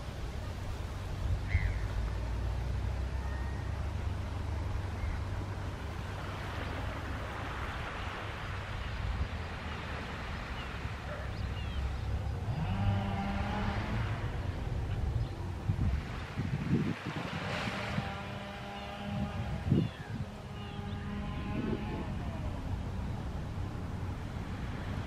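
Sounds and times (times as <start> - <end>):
small waves lapping beach: 0.0 - 25.0
wind rumbling on microphone: 0.0 - 25.0.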